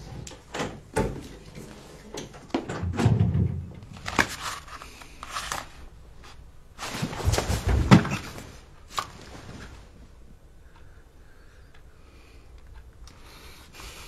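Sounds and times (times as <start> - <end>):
bedding and paper rustling: 3.0 - 10.0.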